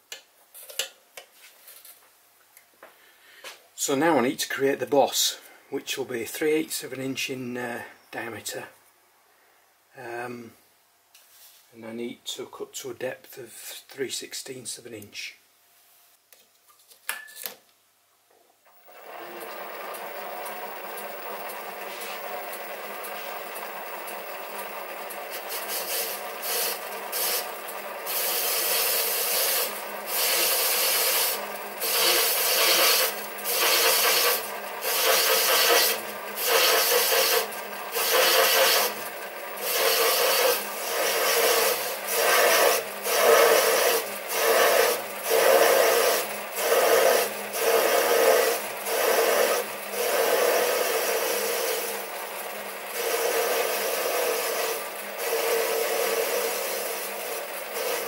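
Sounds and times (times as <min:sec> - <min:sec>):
lathe tool scraping metal: 0:18.8 - 0:58.0.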